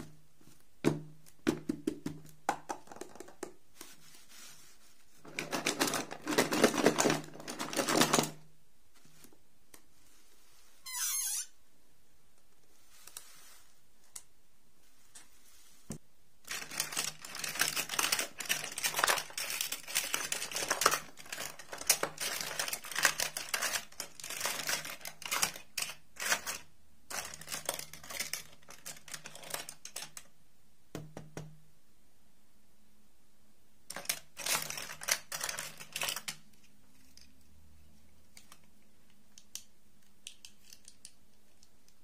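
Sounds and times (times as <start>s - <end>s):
plastic dolls clattering: 5.3s - 8.4s, 16.5s - 30.3s, 33.9s - 36.5s.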